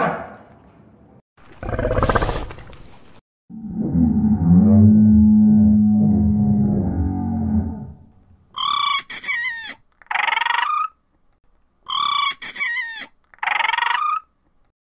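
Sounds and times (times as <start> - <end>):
low drawn-out growl: 3.5 - 8.2.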